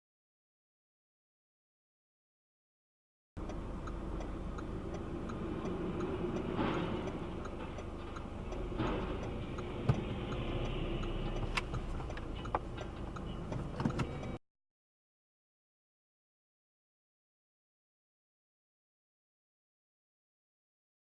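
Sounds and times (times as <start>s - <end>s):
car engine and road rumble: 3.4s - 14.4s
faint regular ticking: 3.4s - 14.4s.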